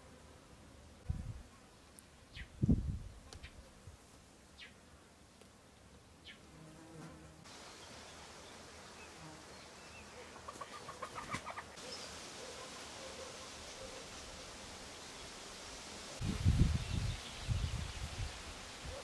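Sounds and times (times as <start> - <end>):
hen clucking: 10.2 - 11.8.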